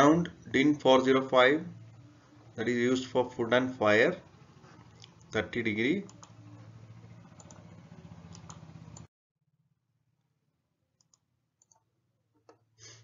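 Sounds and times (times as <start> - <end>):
low steady hum: 0.0 - 9.1.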